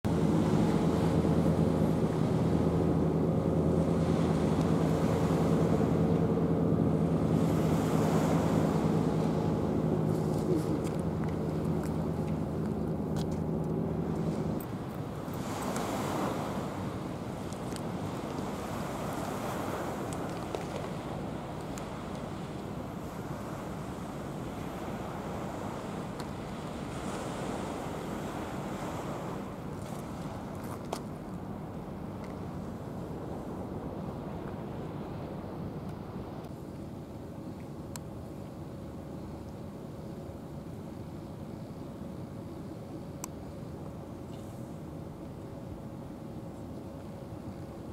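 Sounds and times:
wind: 0.0s - 47.9s
surf: 0.1s - 35.0s
low engine drone: 0.1s - 47.9s.

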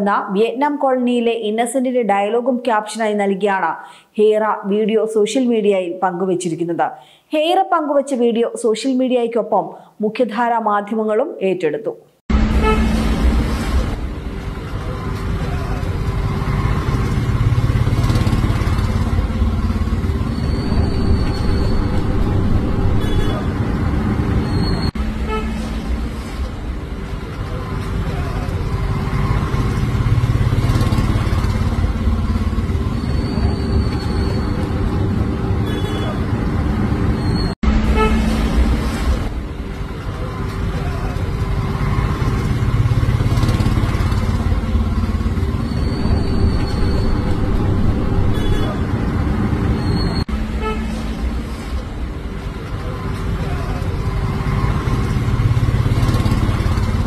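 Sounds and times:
auto-rickshaw engine rumbling: 12.3s - 57.0s
road traffic: 12.3s - 57.0s.

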